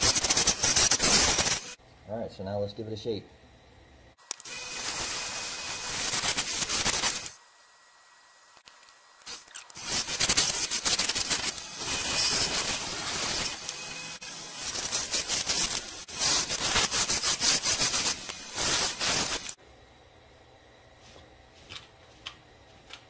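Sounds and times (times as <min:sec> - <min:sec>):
lathe tool scraping wood: 0:09.3 - 0:19.6.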